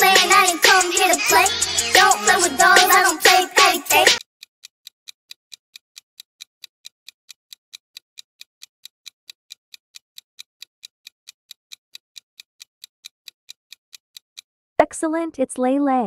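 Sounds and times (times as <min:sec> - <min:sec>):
clock-like ticking: 0:00.0 - 0:14.5.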